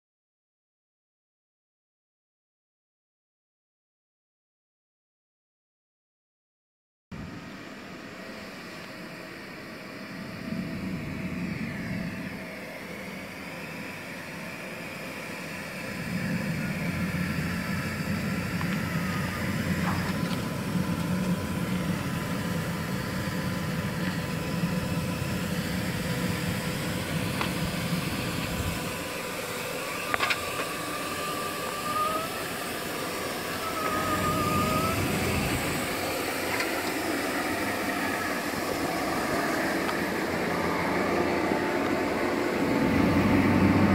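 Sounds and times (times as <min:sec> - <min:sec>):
ride-on sweeper humming and sweeping: 0:07.2 - 0:43.9
high squeaky glides: 0:27.8 - 0:41.6.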